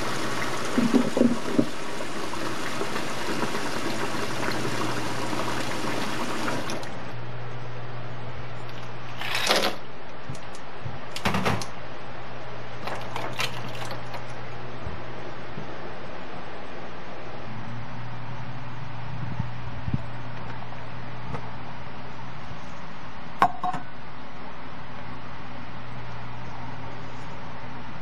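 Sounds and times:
tap water running into bowl: 0.0s - 6.9s
steady low hum: 0.0s - 28.0s.

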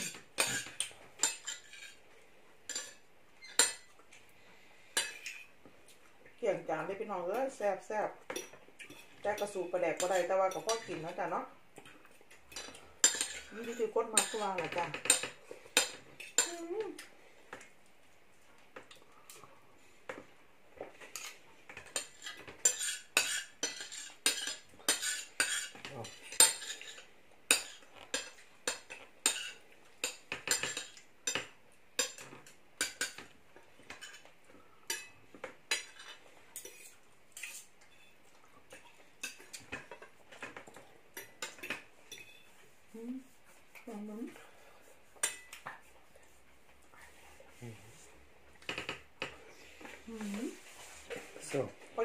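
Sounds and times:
cutlery clinking on plates: 0.0s - 2.0s, 2.7s - 4.0s, 12.3s - 16.6s, 20.1s - 42.6s, 45.2s - 45.8s, 48.6s - 49.4s.

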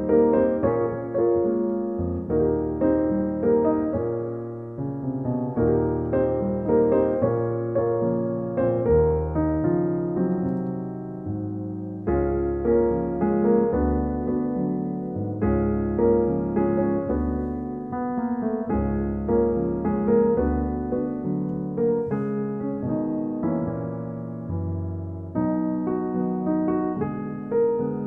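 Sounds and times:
piano music: 0.0s - 28.0s.

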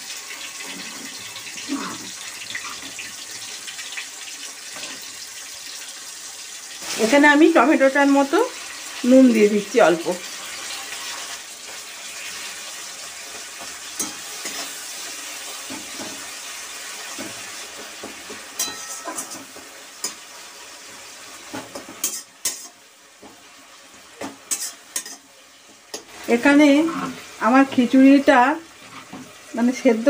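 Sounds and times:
food sizzling in hot oil: 0.0s - 30.0s
metal spatula scraping pan: 13.6s - 16.3s, 18.3s - 20.2s, 21.5s - 22.8s, 24.2s - 25.2s, 28.7s - 29.4s.

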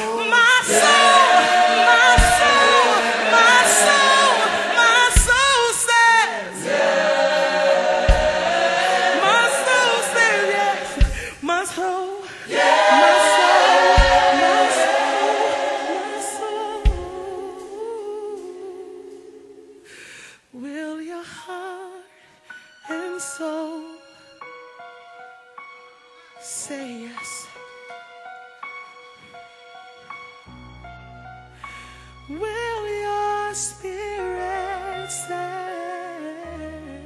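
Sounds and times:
choir singing gospel: 0.0s - 20.0s
low thump: 2.0s - 2.9s, 5.1s - 5.6s, 8.0s - 8.6s, 10.9s - 11.4s, 13.8s - 14.7s, 16.9s - 17.3s.

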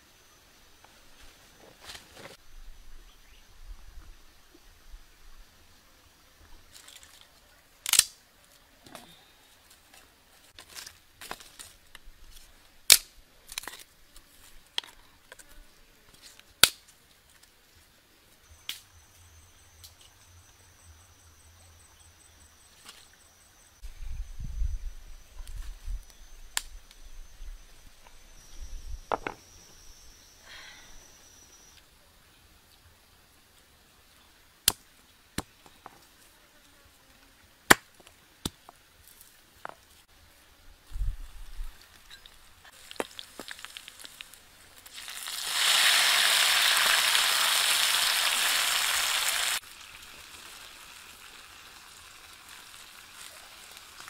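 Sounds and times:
dry sticks snapping: 7.8s - 8.2s.

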